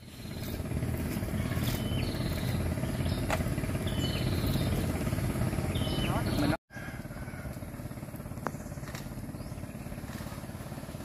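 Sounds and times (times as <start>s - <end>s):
bird calling: 0.0s - 7.5s
excavator diesel engine rumbling: 0.0s - 11.0s.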